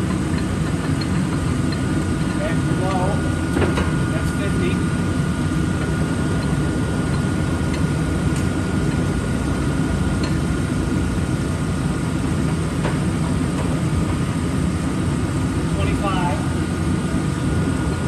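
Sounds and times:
faint machine whine: 0.0 - 18.0
lathe humming: 0.0 - 18.0.

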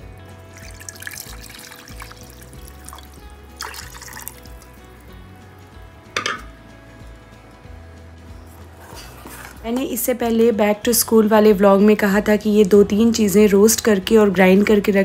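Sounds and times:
background music: 0.0 - 15.0
liquid splash: 0.5 - 4.8
milk pouring into saucepan: 0.5 - 5.2.

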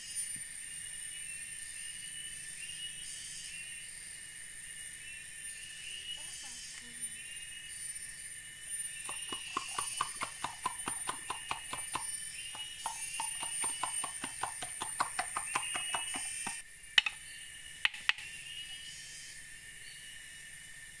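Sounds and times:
insects shrilling: 5.4 - 20.5
machete chopping wood: 9.1 - 17.2.

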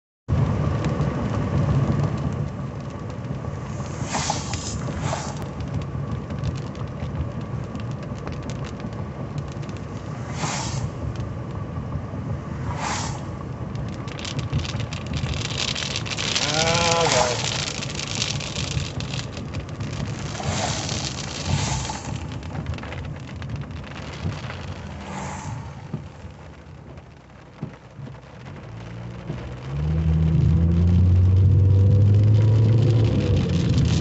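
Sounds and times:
engine and tyres rumbling: 0.3 - 34.0
rain ticking on windshield: 0.3 - 34.0
brief swishes: 3.9 - 5.4, 10.2 - 11.0, 12.6 - 13.3.

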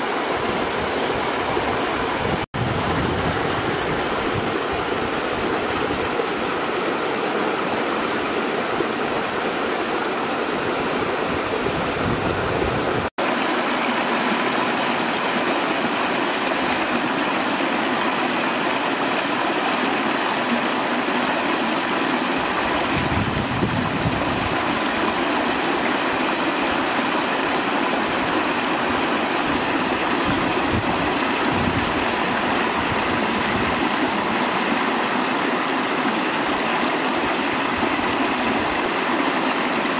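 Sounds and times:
stream rushing over rocks: 0.0 - 39.9.

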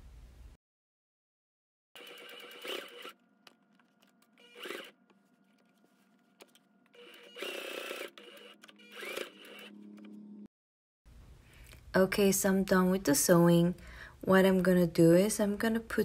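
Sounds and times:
electric sewing machine stitching: 2.0 - 3.2, 4.3 - 5.1, 6.9 - 10.2.

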